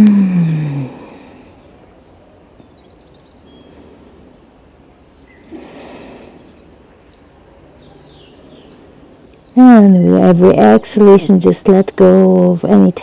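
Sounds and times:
person breathing: 0.0s - 1.7s, 3.5s - 4.5s, 5.4s - 6.6s.

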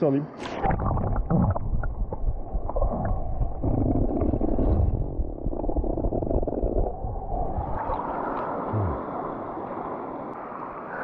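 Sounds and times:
stream rushing underwater: 0.4s - 11.0s.

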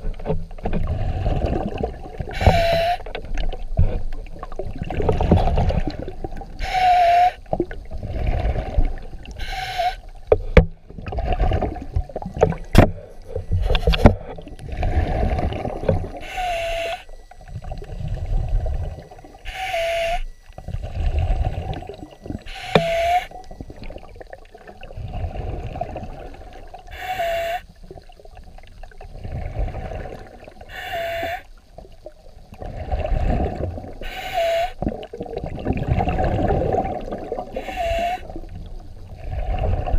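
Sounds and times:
exhaled bubbles gurgling: 0.0s - 39.9s
diver inhaling underwater: 5.1s - 11.8s, 12.9s - 17.2s, 17.8s - 23.4s, 24.8s - 27.7s, 29.1s - 31.5s, 36.1s - 38.4s.

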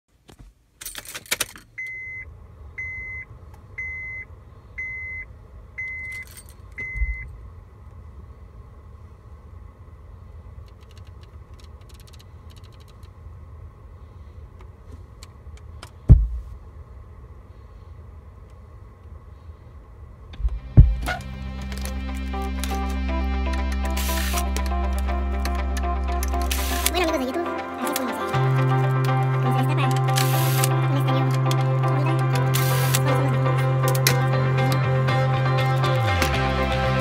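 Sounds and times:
car warning chime beeping: 1.8s - 7.3s
low car rumble: 2.2s - 37.0s
loud thump: 16.1s - 16.6s, 20.4s - 21.2s.

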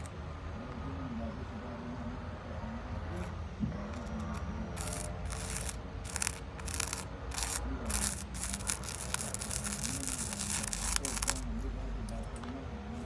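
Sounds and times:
plastic spoon scratching sand: 4.0s - 11.5s.

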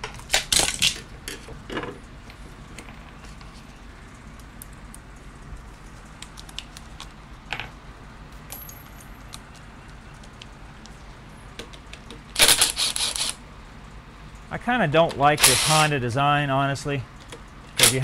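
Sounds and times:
cordless drill spinning: 12.5s - 13.4s.

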